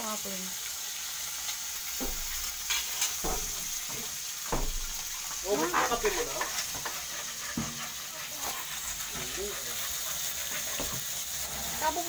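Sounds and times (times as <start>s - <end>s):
food sizzling in frying pan: 0.0s - 12.0s
short knocks: 3.2s - 5.1s.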